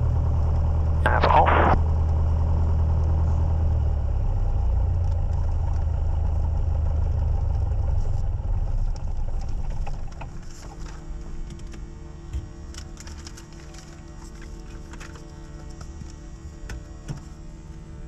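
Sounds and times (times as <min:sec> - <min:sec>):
light aircraft engine idling: 0:00.0 - 0:18.0.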